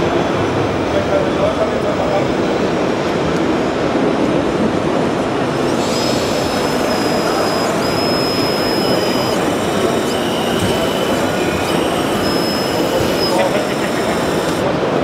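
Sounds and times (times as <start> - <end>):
busy exhibition hall din: 0.0 - 15.0
high whine of electric motors: 5.2 - 15.0
lower motor whine: 5.4 - 14.8.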